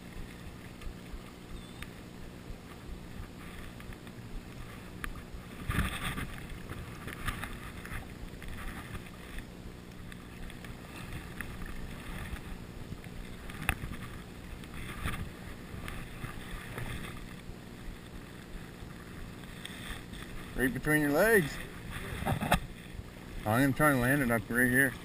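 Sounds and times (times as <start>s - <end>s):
river water running over stones: 0.0s - 25.0s
water sloshing and splashing: 0.0s - 25.0s.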